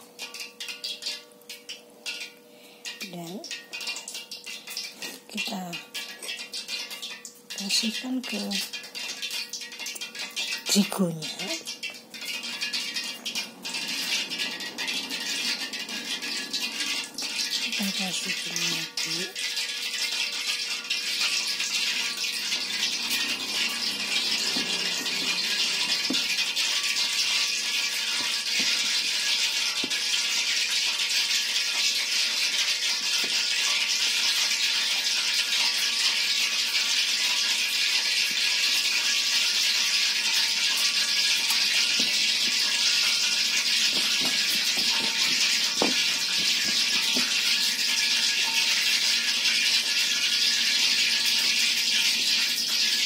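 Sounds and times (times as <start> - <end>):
oil sizzling deep-frying: 0.0 - 53.0.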